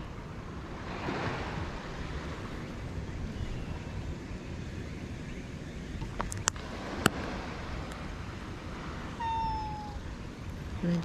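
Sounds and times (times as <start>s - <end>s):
rumble of wind and surf: 0.0s - 11.0s
cat meowing: 9.2s - 10.0s.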